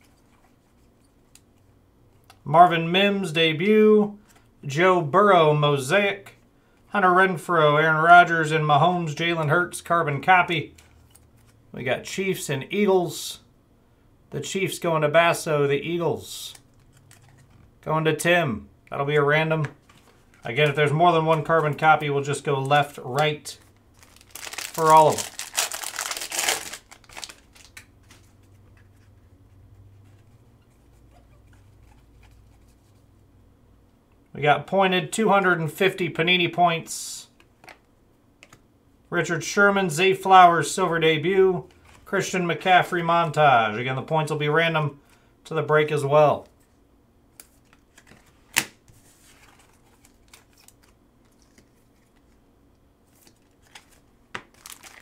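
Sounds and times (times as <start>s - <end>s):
foil wrapper crinkling and tearing: 23.9s - 28.2s, 53.2s - 55.0s.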